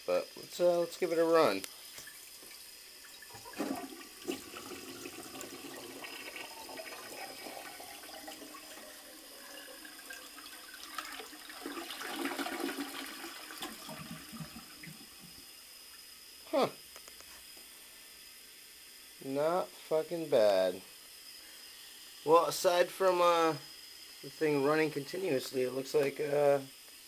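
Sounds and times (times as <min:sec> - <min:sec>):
toilet flushing: 0:01.1 - 0:15.8.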